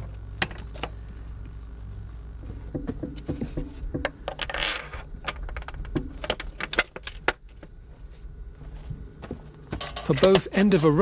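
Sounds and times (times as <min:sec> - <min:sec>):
panel frames clicking and knocking: 0:02.6 - 0:07.8.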